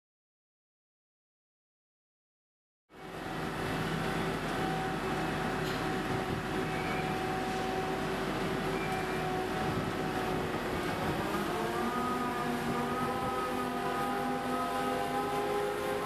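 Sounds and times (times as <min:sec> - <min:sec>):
high whine: 0:03.0 - 0:16.0
material handler machine whining: 0:03.0 - 0:16.0.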